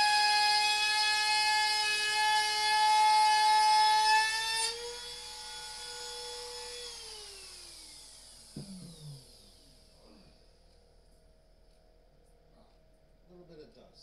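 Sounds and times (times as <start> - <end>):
router cutting noise: 0.0 - 9.9
router winding down: 0.0 - 10.2
router whining: 0.0 - 10.3.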